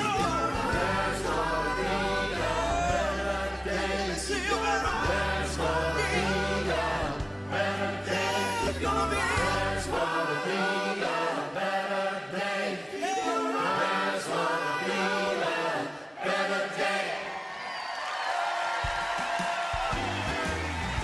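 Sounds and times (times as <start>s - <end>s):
deep bass: 0.0s - 10.0s
choir-like voices singing: 0.0s - 17.8s.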